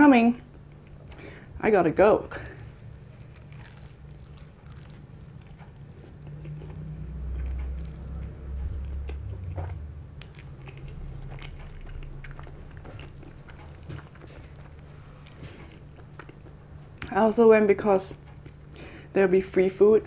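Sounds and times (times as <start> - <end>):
person chewing: 2.4 - 17.1.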